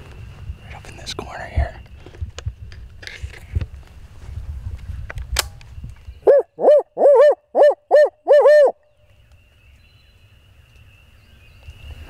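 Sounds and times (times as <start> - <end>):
owl call hooting: 6.2 - 9.0.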